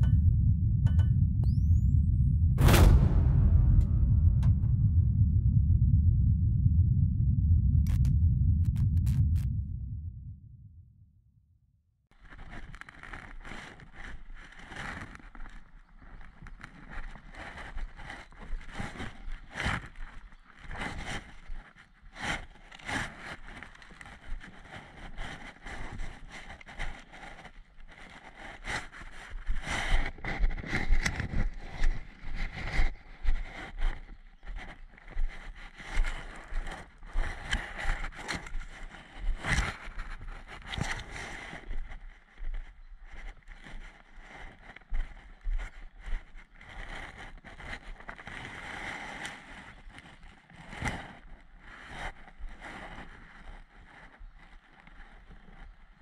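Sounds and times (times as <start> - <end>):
footsteps on dirt path: 12.3 - 48.2.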